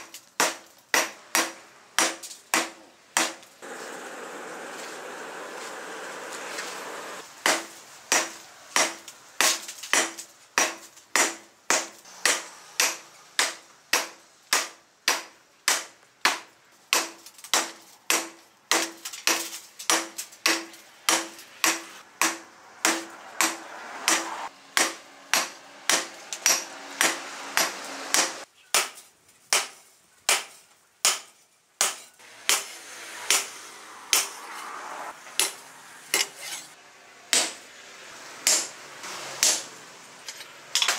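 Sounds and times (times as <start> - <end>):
hammer striking steel on anvil: 7.5 - 16.4, 17.0 - 34.4, 35.4 - 36.6.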